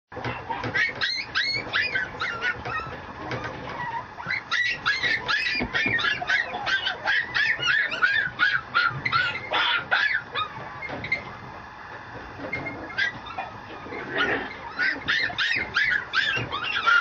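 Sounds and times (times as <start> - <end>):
puppy whimpering: 0.2 - 11.4, 12.4 - 17.0.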